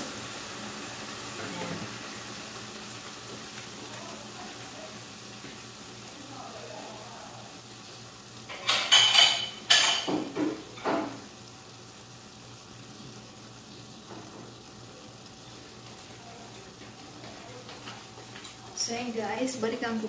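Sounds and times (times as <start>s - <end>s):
metal cookware clattering: 8.5s - 11.2s.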